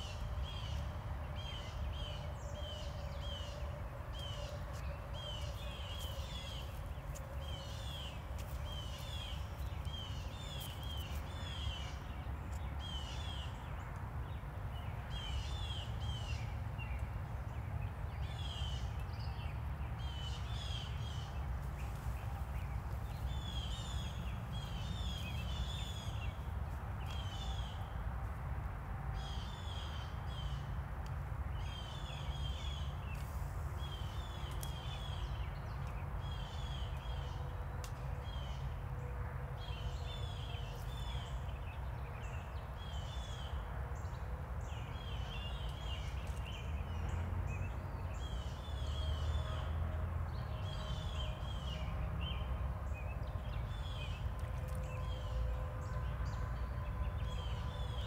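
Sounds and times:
birds chirping: 0.0 - 27.9.

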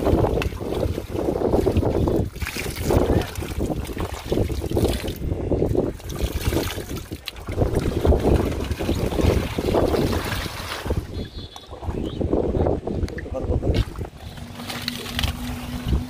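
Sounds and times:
feet wading through muddy water: 0.0 - 12.2, 13.6 - 16.0
wind buffeting microphone: 0.0 - 16.0.

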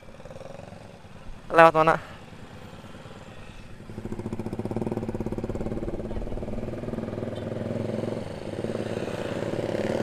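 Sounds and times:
motorcycle engine running: 2.2 - 10.0.

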